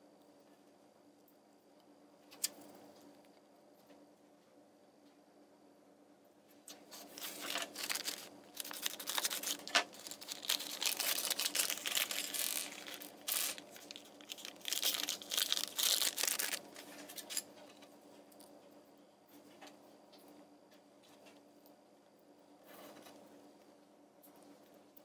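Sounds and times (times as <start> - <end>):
plastic bag crinkling and tearing: 6.9 - 17.4.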